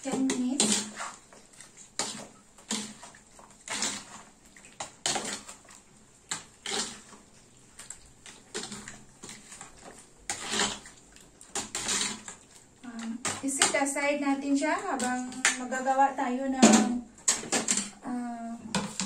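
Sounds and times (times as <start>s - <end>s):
spoon mixing wet marinade: 0.0s - 15.9s.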